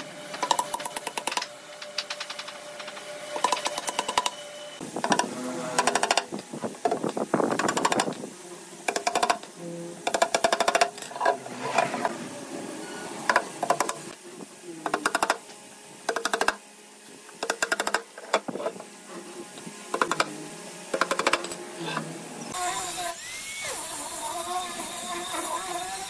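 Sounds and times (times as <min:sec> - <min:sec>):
hammer tapping nails: 0:08.9 - 0:09.4.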